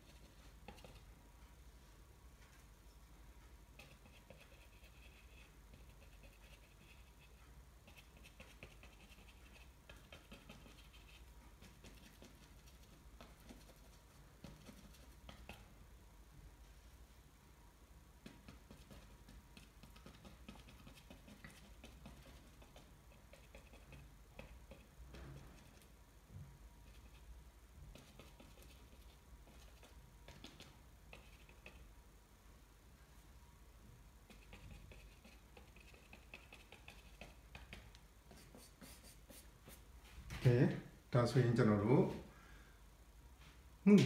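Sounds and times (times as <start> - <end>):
paintbrush tapping on board: 18.2 - 25.7.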